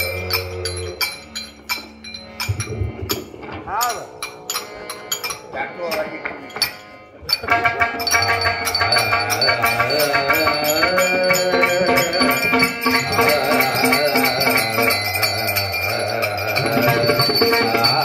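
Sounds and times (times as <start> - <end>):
man singing into a microphone: 0.0 - 1.2, 8.1 - 18.0
droning harmonium: 0.0 - 18.0
hand cymbals clinking: 0.0 - 18.0
tabla: 0.0 - 18.0.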